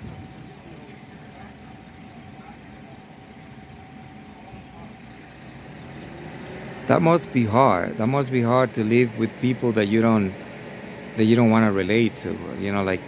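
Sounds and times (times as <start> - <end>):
faint indistinct voices: 0.0 - 5.4
vehicle engine idling: 0.0 - 13.0.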